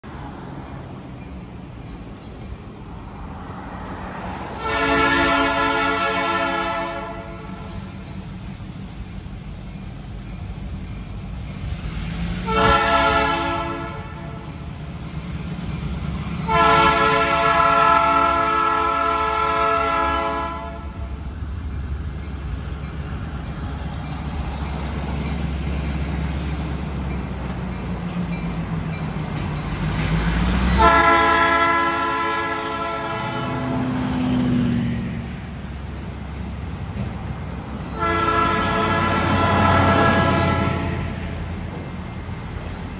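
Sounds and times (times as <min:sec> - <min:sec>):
locomotive air horn blasts: 0:04.5 - 0:07.9, 0:12.4 - 0:14.6, 0:16.4 - 0:21.1, 0:30.7 - 0:34.0, 0:37.9 - 0:41.5.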